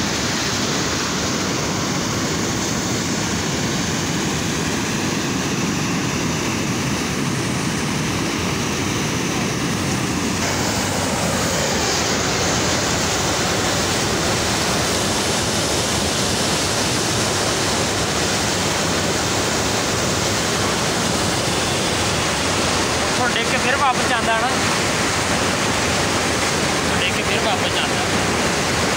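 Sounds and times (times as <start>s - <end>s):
water pouring into foaming whitewater: 10.4s - 28.9s.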